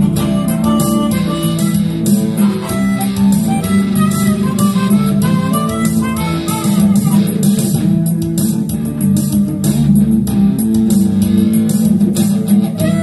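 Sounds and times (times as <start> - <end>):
harmonica: 0.0 - 7.8, 12.6 - 13.0
drum beat: 0.0 - 13.0
electric guitar: 0.0 - 13.0.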